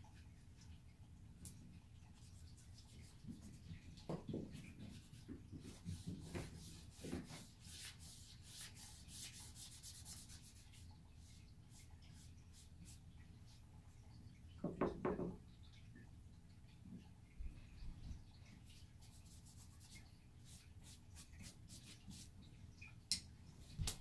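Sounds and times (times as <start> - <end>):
paintbrush scrubbing on paper: 4.6 - 13.0, 19.0 - 22.3.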